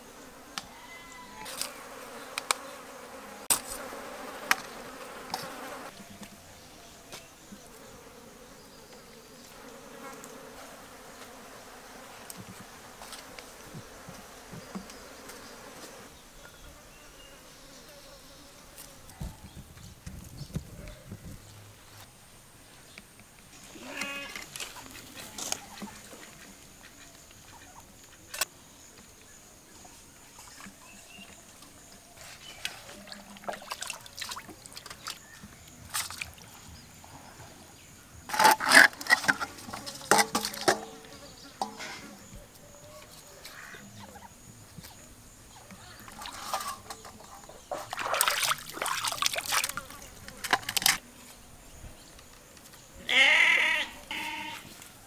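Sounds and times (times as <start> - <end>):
water splashing in steel bowl: 33.0 - 35.2, 39.2 - 41.0, 47.7 - 51.0
short animal call: 53.1 - 54.6.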